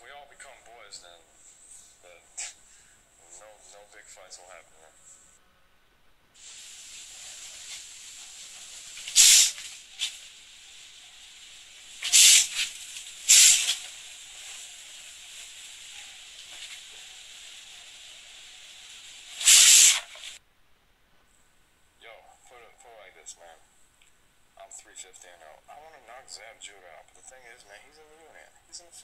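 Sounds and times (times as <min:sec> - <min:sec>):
steady background hiss: 0:00.0 - 0:29.0
sharp hissing exhales: 0:01.4 - 0:03.2, 0:06.4 - 0:20.4.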